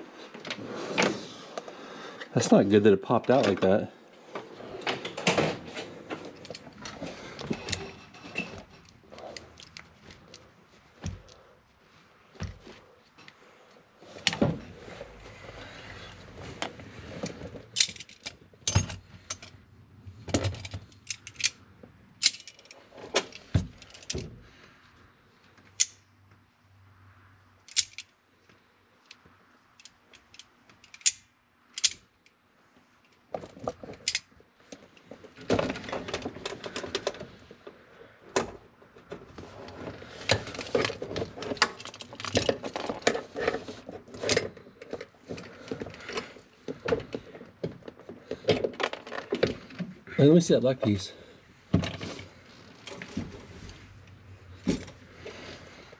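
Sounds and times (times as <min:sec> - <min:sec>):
metallic clicks and clinks: 0:17.7 - 0:19.6, 0:20.4 - 0:21.6, 0:22.2 - 0:24.3, 0:27.6 - 0:28.1, 0:29.8 - 0:32.4.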